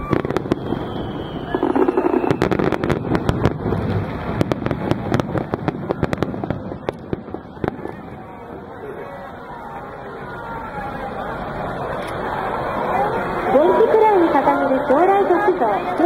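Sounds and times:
fireworks bangs and crackles: 0.0 - 10.0.

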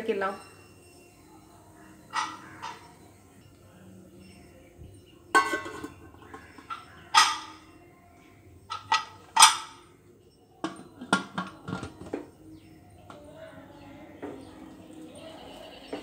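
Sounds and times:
pressure cooker lid clinking: 5.3 - 7.6, 8.7 - 9.8, 10.6 - 12.2.

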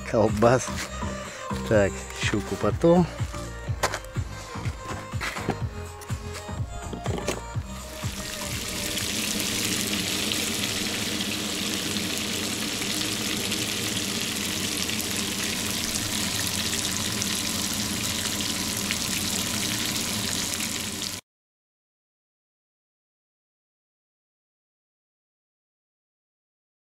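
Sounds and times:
fish sizzling in hot oil: 7.8 - 21.2.

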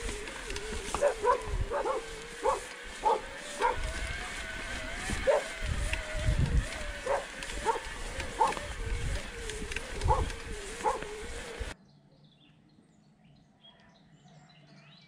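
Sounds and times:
electric motor whine: 0.0 - 11.8
wind and riding noise: 0.0 - 11.8
dog barking: 1.0 - 3.9, 5.2 - 5.5, 7.0 - 8.6, 10.1 - 11.1.

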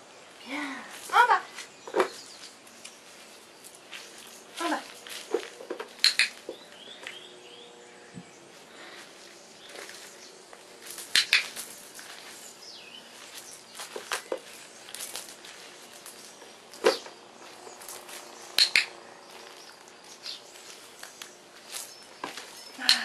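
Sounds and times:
paws crunching gravel: 1.5 - 7.3, 8.8 - 18.6, 19.2 - 23.0
dog-training clicker clicks: 6.0 - 6.4, 18.6 - 18.9.

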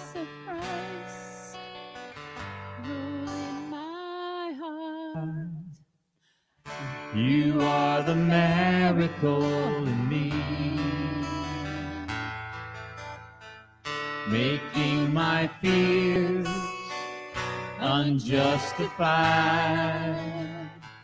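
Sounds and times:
woman singing into a microphone: 0.0 - 1.6, 2.8 - 5.5, 8.8 - 12.2
acoustic guitar strumming: 0.0 - 4.1, 6.6 - 21.0.

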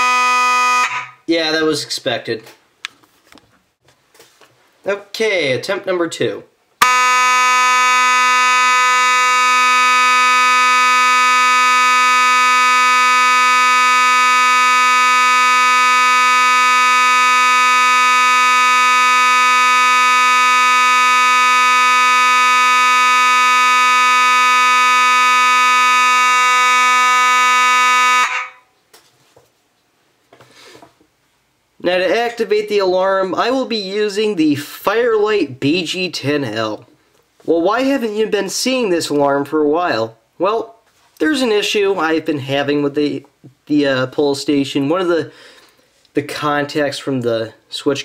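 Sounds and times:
fire alarm horn tone: 0.0 - 1.2, 6.8 - 28.7.

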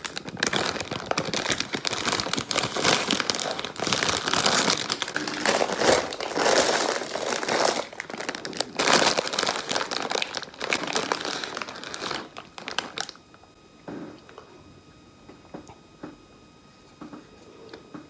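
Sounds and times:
plastic packet crinkling: 0.0 - 13.5.

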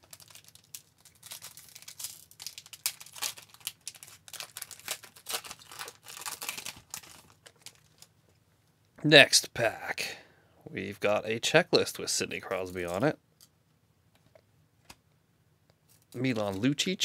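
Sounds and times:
plastic wrapper crinkling and tearing: 0.0 - 8.1.

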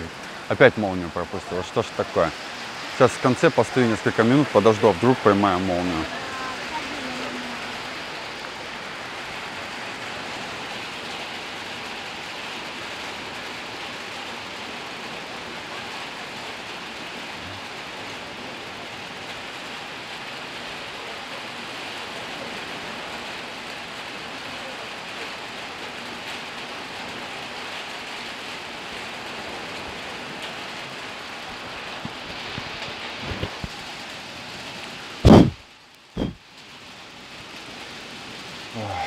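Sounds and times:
steady rain falling: 0.0 - 39.0.

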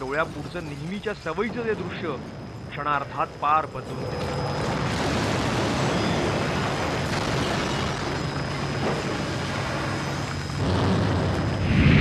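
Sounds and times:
bomb blast roar: 4.0 - 12.0.

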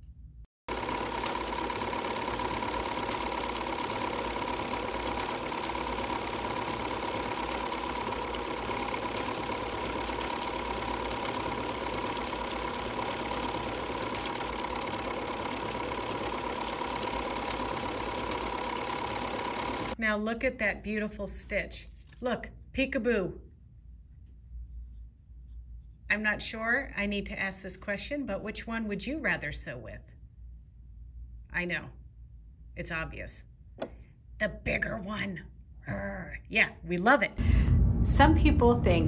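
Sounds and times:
sewing machine stitching: 0.7 - 20.0.

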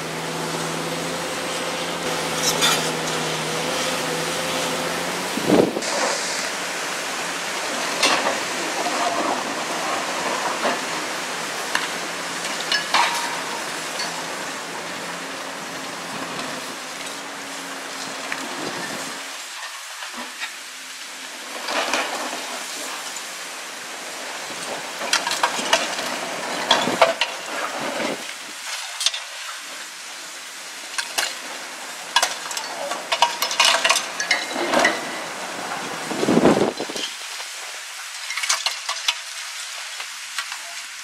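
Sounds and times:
diesel engine running: 0.0 - 19.4.

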